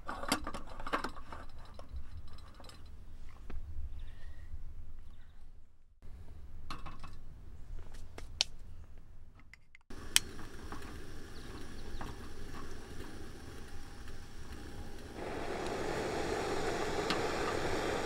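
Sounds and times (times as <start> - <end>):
steady wind rush: 9.9 - 18.0.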